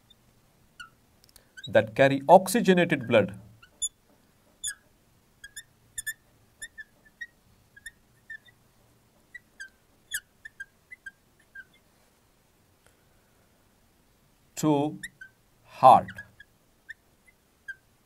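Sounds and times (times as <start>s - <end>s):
marker squeaking on glass: 0.8s - 1.0s, 1.6s - 2.0s, 3.0s - 4.0s, 4.6s - 8.6s, 9.2s - 11.8s, 14.9s - 17.9s.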